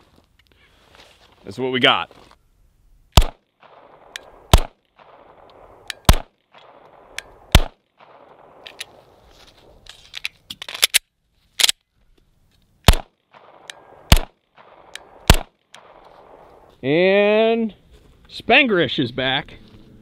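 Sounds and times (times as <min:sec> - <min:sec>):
pistol shots: 0:03.2 - 0:09.0, 0:12.8 - 0:16.4.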